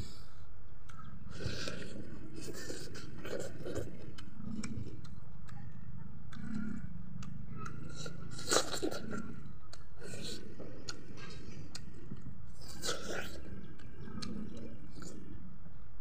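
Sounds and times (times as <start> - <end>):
chewing food: 0.8 - 15.5
sharp bite into food: 7.9 - 9.2.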